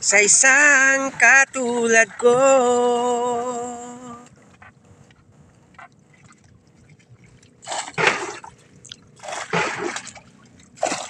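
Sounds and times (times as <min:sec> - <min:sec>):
loud water splashes: 0:06.1 - 0:11.0.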